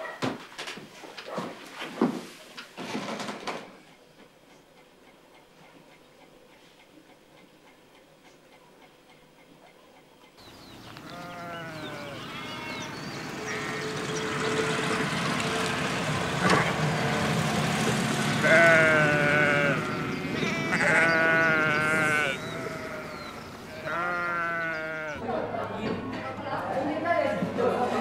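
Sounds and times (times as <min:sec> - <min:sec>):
sheep bleating: 0:11.1 - 0:14.0, 0:18.4 - 0:25.2.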